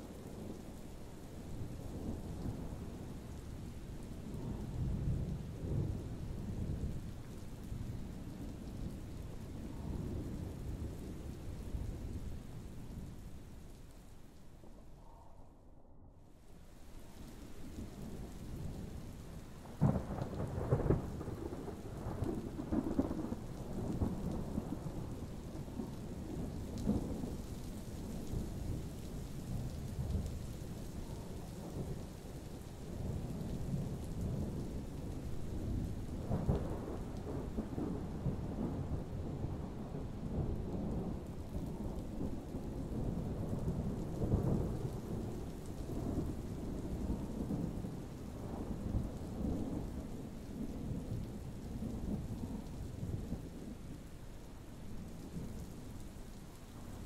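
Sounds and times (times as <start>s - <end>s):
steady rain: 0.0s - 15.3s, 16.2s - 57.0s
thunder rumbling: 17.5s - 55.9s.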